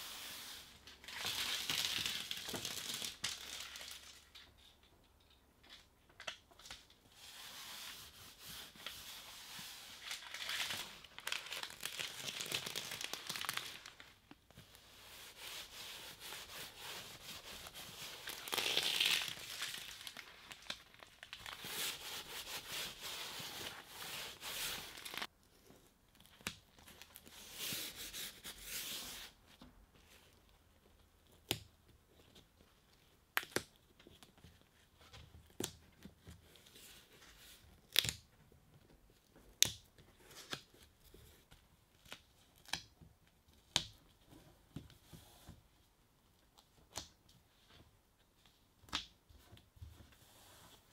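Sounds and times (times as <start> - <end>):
plastic sheet crinkling: 9.8 - 14.4, 16.2 - 25.3.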